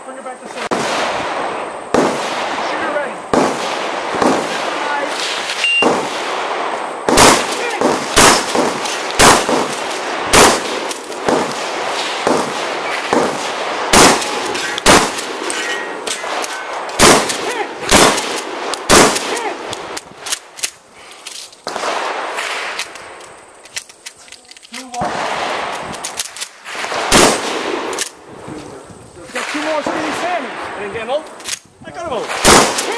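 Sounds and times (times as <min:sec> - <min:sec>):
shotgun shots: 0:00.6 - 0:20.6, 0:21.6 - 0:23.0, 0:25.0 - 0:28.1, 0:32.1 - 0:32.9.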